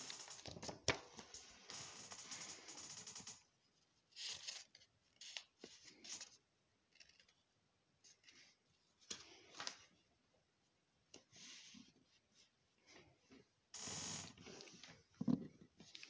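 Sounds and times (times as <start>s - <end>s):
paper rustling: 4.1s - 7.4s.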